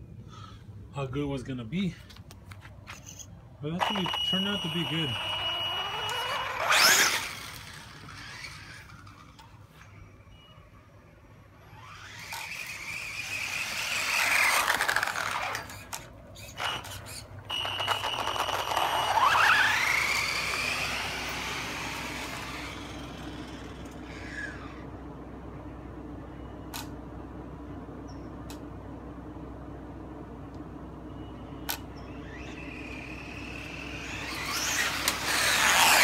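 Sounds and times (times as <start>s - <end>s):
tyre and drivetrain noise: 2.0s - 10.0s, 11.5s - 36.0s
electric motor whining: 3.8s - 9.4s, 11.6s - 24.8s, 32.1s - 36.0s.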